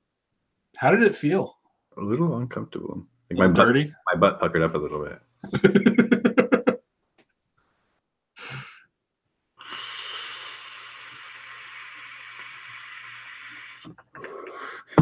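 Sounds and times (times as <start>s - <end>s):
short breaths: 8.4s - 8.9s, 9.6s - 15.0s
e-cigarette airy hiss: 9.6s - 15.0s.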